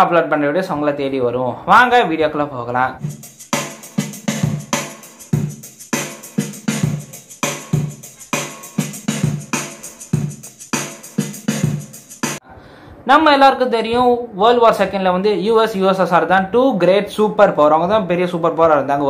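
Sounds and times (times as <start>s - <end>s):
intro music with drum-machine beat: 3.0s - 12.4s.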